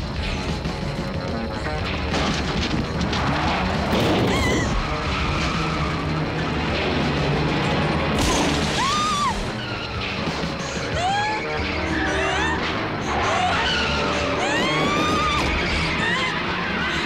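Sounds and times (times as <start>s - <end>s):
tense synthesizer score: 0.0s - 17.0s
car engine: 1.3s - 8.8s
crash and impact effects: 2.1s - 9.5s
tyres squealing: 8.6s - 17.0s.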